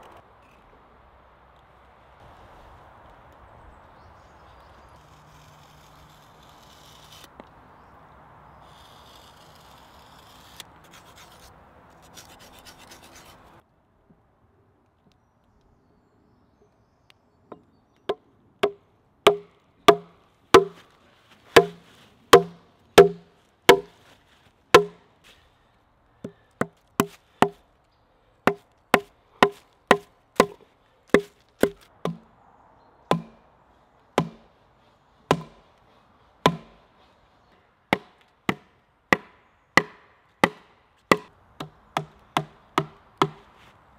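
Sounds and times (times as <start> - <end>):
gloved hand rubbing wood: 4.8 - 7.3, 20.6 - 24.1
wooden club striking axe head: 18.6 - 20.8, 21.6 - 23.9, 24.8 - 25.0, 26.2 - 27.6, 28.5 - 32.3, 33.1 - 33.4, 34.2 - 34.4, 35.3 - 35.6, 36.4 - 36.8, 37.9 - 43.5.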